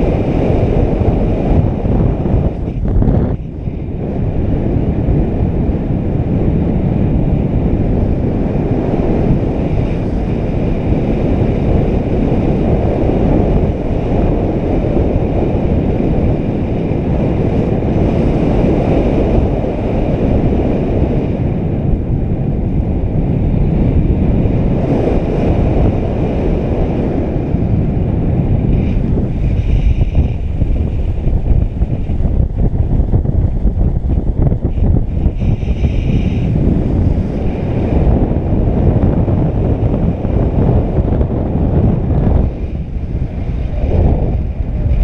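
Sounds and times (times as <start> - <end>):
wind buffeting microphone: 0.0 - 45.0.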